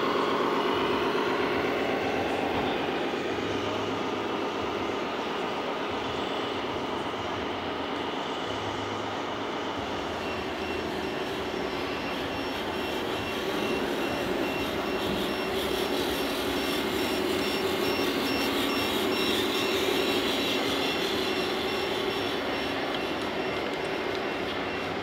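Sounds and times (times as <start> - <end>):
radio-controlled trucks running: 0.0 - 25.0
repeating electronic beep: 10.0 - 25.0.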